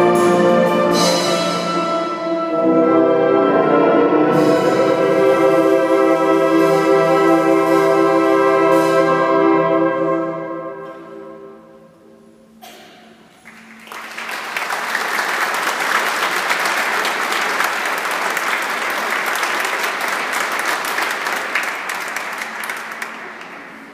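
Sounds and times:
audience applause: 0:13.4 - 0:23.9.

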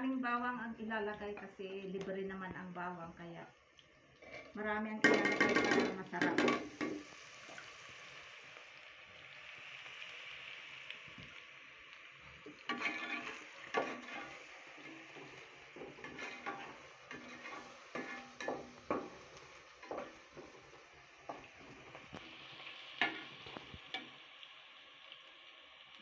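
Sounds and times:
onions sizzling in hot oil: 0:00.0 - 0:26.0
spatula scraping and knocking pot: 0:12.7 - 0:22.2.

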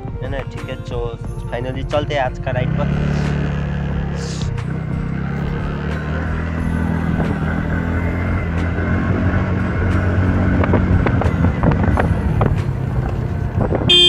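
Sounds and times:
music: 0:00.0 - 0:14.0
scooter engine running: 0:02.7 - 0:14.0.

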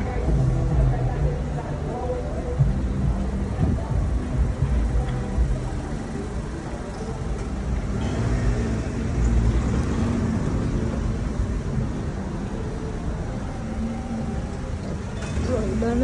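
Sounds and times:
car engines in slow traffic: 0:00.0 - 0:16.0.

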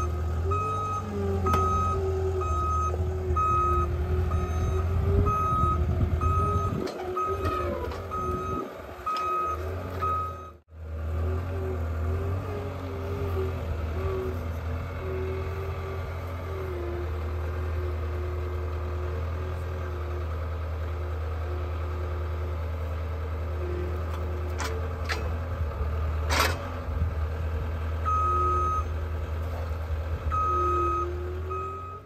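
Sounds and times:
diesel engine running: 0:00.0 - 0:32.0
log clanking on steel bed: 0:00.4 - 0:02.1, 0:06.2 - 0:10.3, 0:24.0 - 0:25.5, 0:26.2 - 0:26.8
backup alarm beeps: 0:08.1 - 0:10.6.

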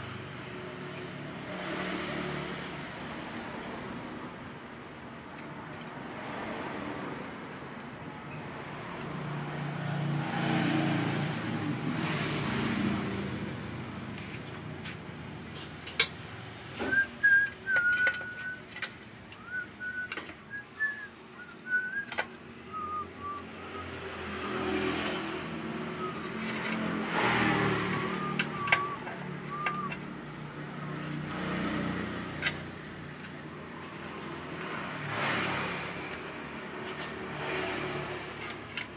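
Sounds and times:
person whistling a tune: 0:16.9 - 0:18.7, 0:19.4 - 0:24.6, 0:25.9 - 0:26.4, 0:27.8 - 0:30.0.

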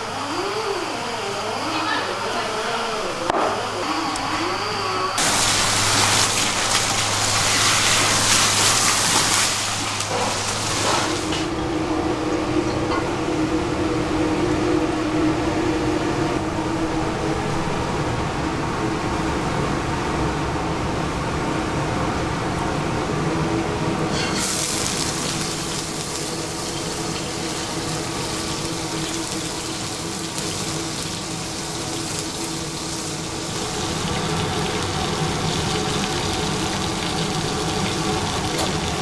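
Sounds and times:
low rumble with hum: 0:02.6 - 0:39.0
loud rushing hiss: 0:03.0 - 0:11.6.

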